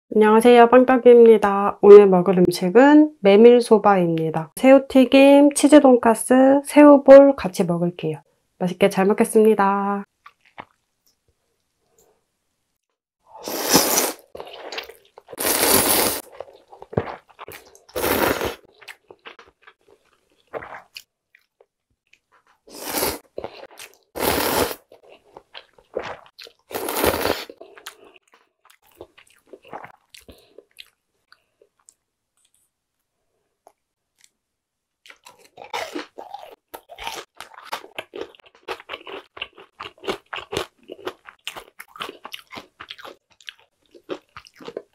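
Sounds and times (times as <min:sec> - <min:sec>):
noodles slurped: 0:13.4 - 0:19.6, 0:22.7 - 0:28.0
chewing with wet mouth clicks: 0:35.1 - 0:44.9.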